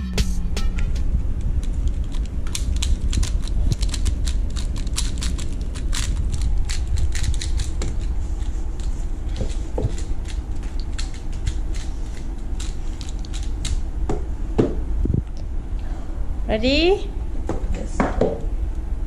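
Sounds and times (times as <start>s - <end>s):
steady low rumble: 0.0s - 19.0s
plastic puzzle cube clicking: 1.6s - 8.5s, 9.4s - 13.8s.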